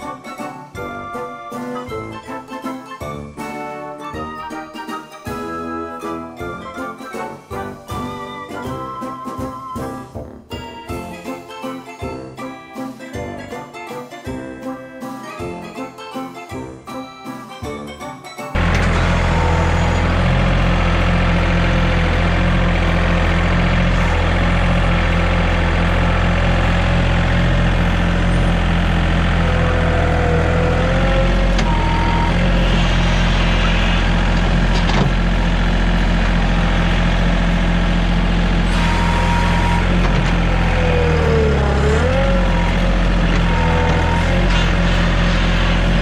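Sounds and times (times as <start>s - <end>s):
engine running steadily: 18.6s - 46.0s.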